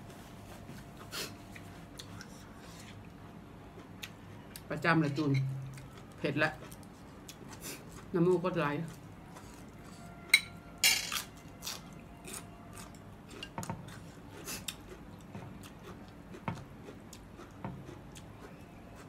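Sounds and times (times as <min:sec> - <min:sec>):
chewing: 0:00.8 - 0:03.1, 0:05.7 - 0:10.3, 0:11.6 - 0:19.0.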